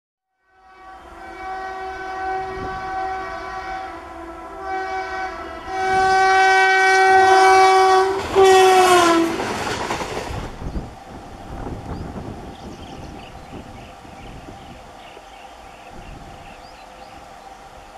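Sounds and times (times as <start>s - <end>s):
locomotive horn blasts: 0.4s - 9.5s
train rushing past: 0.5s - 17.9s.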